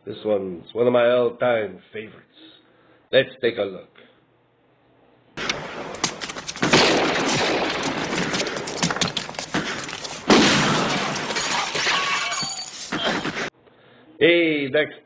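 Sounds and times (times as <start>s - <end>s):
loud gunshot blast: 5.4s - 11.4s
shattering crackling debris: 5.4s - 13.5s.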